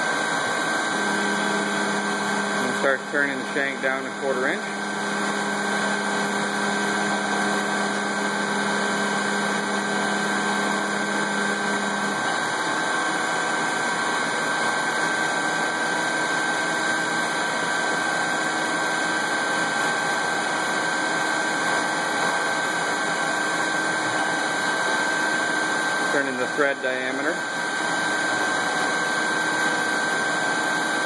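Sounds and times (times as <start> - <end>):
high machine whine: 0.0 - 31.0
lathe cutting metal: 0.0 - 31.0
low machine hum: 0.9 - 13.3.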